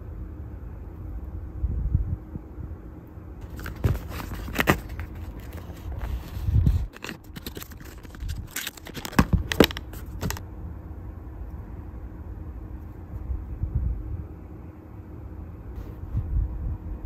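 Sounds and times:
steady low hum: 0.0s - 17.0s
card boxes scraping and crinkling: 3.4s - 10.4s.

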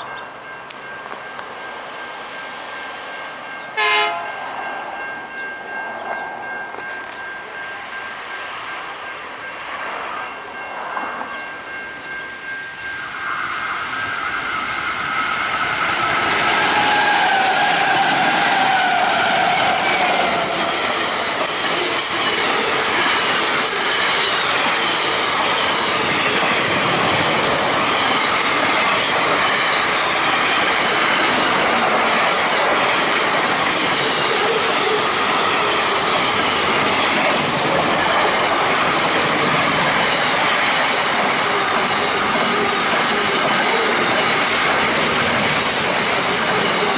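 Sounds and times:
train wheels squealing: 12.6s - 31.6s
train wheels clattering over rail joints: 16.0s - 46.9s.

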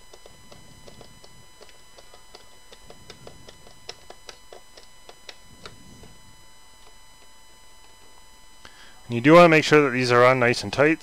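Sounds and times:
screwdriver clicking: 0.0s - 6.2s.

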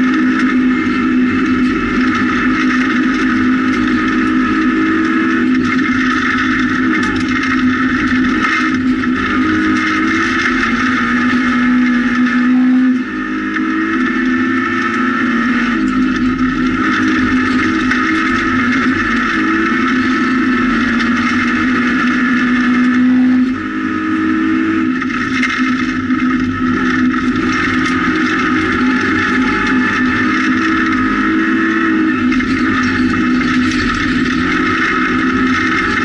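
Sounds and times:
rally car engine at high revs: 0.0s - 36.0s.

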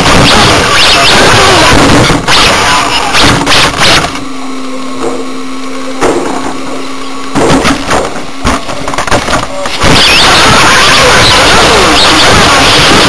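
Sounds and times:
loud rushing noise: 0.0s - 4.2s, 7.4s - 13.0s
radio-controlled car humming: 0.0s - 13.0s.

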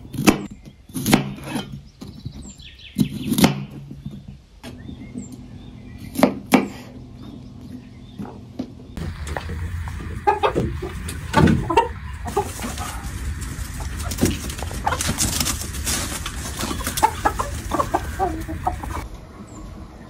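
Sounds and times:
chickens clucking: 1.1s - 20.0s
steady low rumble: 7.0s - 20.0s.

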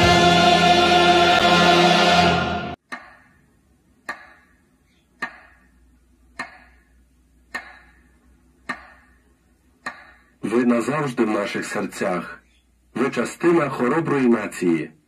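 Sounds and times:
choir singing with accompaniment: 0.0s - 2.8s.

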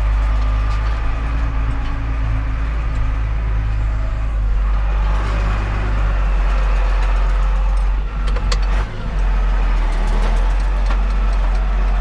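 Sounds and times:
tractor diesel engine running: 0.0s - 12.0s
knocks and rattles: 6.6s - 9.0s.

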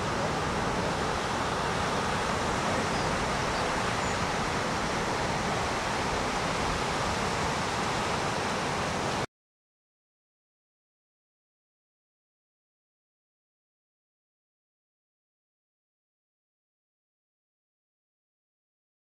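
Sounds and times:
ocean surf breaking: 0.0s - 9.3s.

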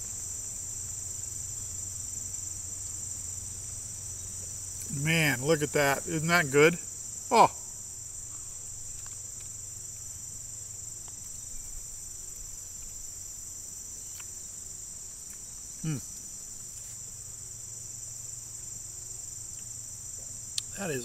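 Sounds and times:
insects droning: 0.0s - 21.0s
man murmuring while chewing: 15.8s - 16.2s.

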